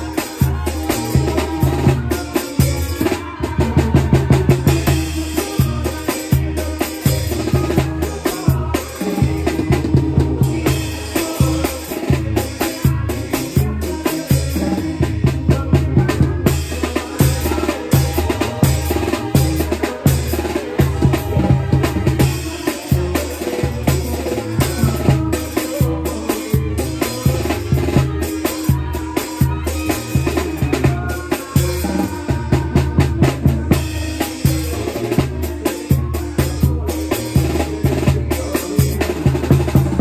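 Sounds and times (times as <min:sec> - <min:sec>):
brass band music: 0:00.0 - 0:40.0.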